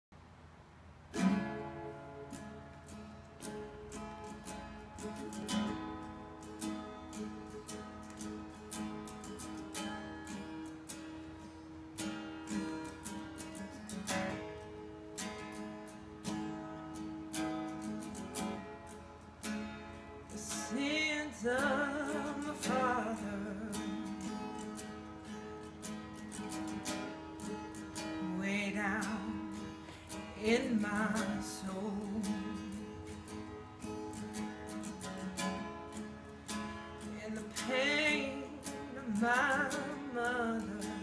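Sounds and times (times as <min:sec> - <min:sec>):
guitar strummed slowly: 0:01.1 - 0:41.0
person singing: 0:20.3 - 0:24.3, 0:28.0 - 0:33.2, 0:37.0 - 0:41.0.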